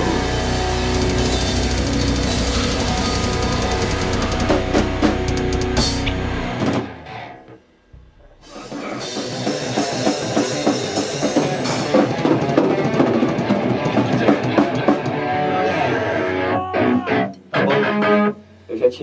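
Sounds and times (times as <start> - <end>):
metal band playing: 0.0 - 18.3.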